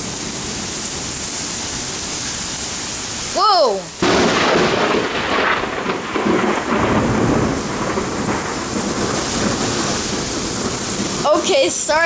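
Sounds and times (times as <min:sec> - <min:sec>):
heavy rain pouring: 0:00.0 - 0:12.0
thunder rumbling: 0:04.0 - 0:12.0.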